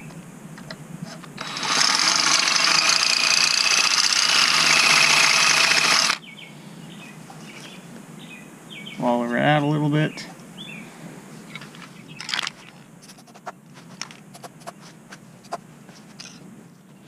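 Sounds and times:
cordless drill boring: 0:01.4 - 0:06.2.

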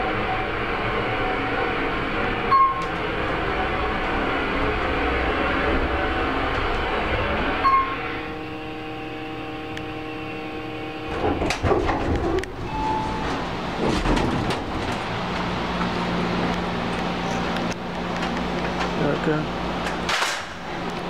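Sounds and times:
elevator humming: 0:00.0 - 0:21.0
knocks and rustling: 0:11.1 - 0:15.9.

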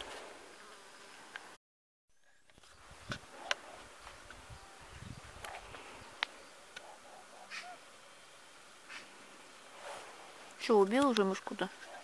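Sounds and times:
rustling in grass: 0:02.5 - 0:06.7, 0:07.5 - 0:12.0.

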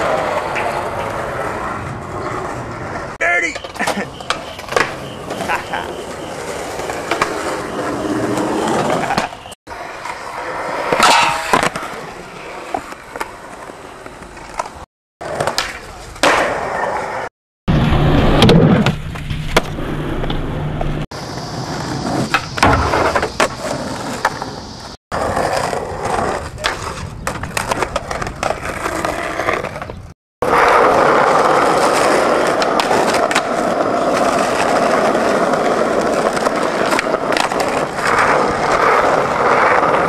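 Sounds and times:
skateboard wheels rolling: 0:00.0 - 0:40.0
skateboard clacks popping and landing: 0:03.5 - 0:05.6, 0:10.8 - 0:12.0, 0:14.1 - 0:16.6, 0:18.3 - 0:20.4, 0:22.1 - 0:24.6, 0:25.2 - 0:30.6, 0:31.6 - 0:40.0.

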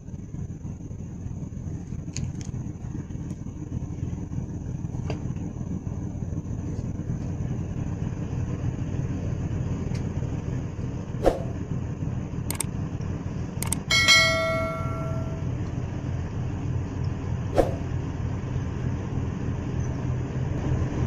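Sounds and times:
boat diesel engine droning: 0:00.0 - 0:21.0
sharp clicks: 0:12.5 - 0:12.7, 0:13.6 - 0:13.9
bell-like ding: 0:13.9 - 0:15.6.

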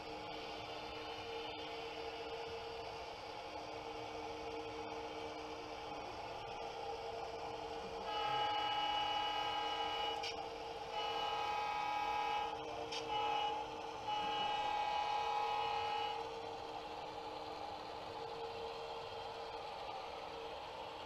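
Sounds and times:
steady low hum: 0:00.0 - 0:21.0
model locomotive horn blasts: 0:08.0 - 0:16.5.

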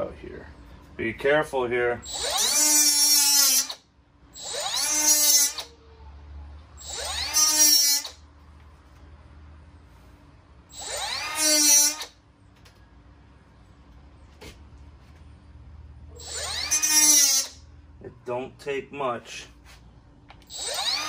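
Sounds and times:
cordless cut-off tool whining: 0:02.0 - 0:05.8, 0:06.8 - 0:08.2, 0:10.7 - 0:12.2, 0:16.1 - 0:17.6, 0:20.3 - 0:21.0.

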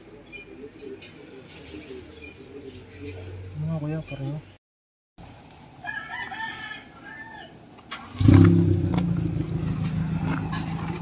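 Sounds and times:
rooster crowing: 0:05.8 - 0:07.6
car engine starting and idling: 0:07.9 - 0:11.0.

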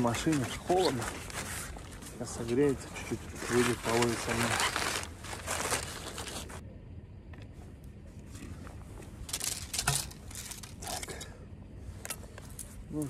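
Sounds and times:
fabric rustling: 0:00.0 - 0:06.6.

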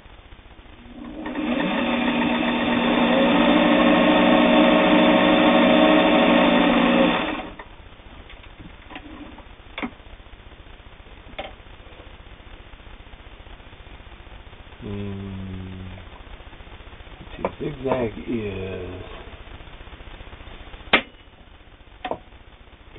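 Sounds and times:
sewing machine running: 0:00.9 - 0:07.6.

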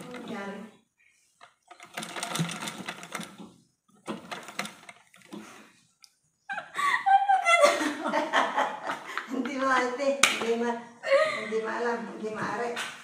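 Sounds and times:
sewing machine clattering: 0:00.0 - 0:00.7, 0:01.4 - 0:05.4
woman laughing loudly: 0:06.5 - 0:09.3.

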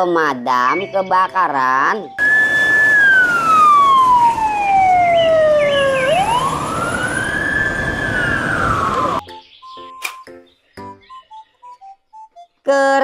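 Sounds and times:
brief siren chirps: 0:02.2 - 0:09.2
fire engine siren wailing: 0:02.2 - 0:09.2.

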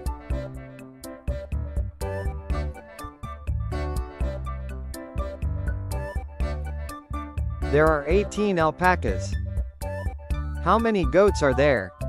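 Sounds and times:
light tune over bass line: 0:07.6 - 0:09.4, 0:10.5 - 0:12.0.

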